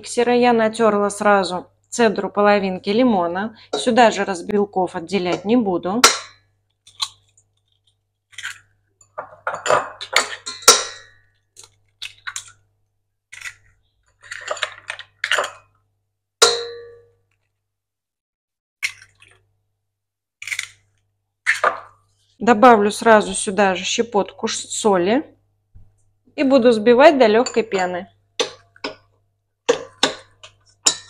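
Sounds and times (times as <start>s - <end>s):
eggs cracking on metal bowl: 5.2s - 12.6s, 13.3s - 15.8s, 18.8s - 19.4s, 20.4s - 22.0s, 27.4s - 31.0s
metal bowl ringing: 16.4s - 17.2s.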